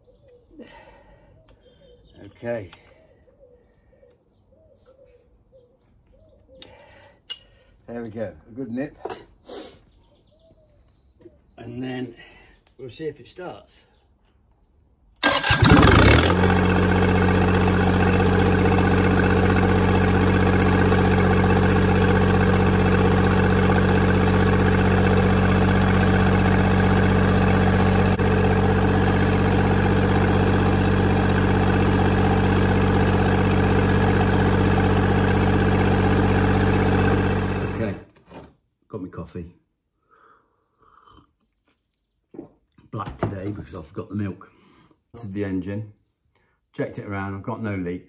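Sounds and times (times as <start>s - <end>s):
diesel engine starting and idling: 15.2s - 38.0s.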